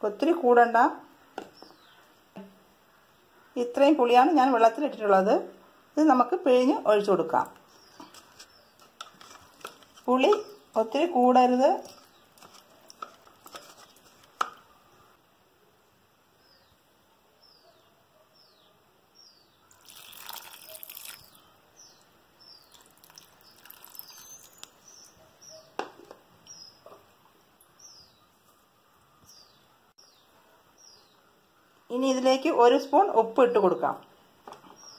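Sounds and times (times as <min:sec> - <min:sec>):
small bird chirping: 0:17.4 - 0:25.8
liquid pouring into a pan: 0:19.8 - 0:21.4, 0:22.7 - 0:24.7.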